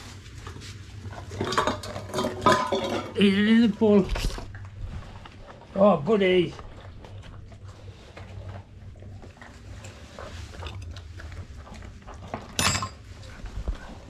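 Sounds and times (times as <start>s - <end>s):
dog chewing: 3.8s - 14.0s.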